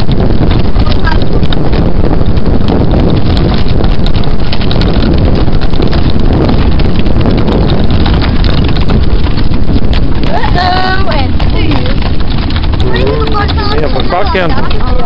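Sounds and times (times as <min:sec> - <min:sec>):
harness and wheel noise: 0:00.0 - 0:15.0
heavy rumble: 0:00.0 - 0:15.0
hoofbeats on asphalt: 0:00.0 - 0:15.0
wind buffeting microphone: 0:00.0 - 0:15.0.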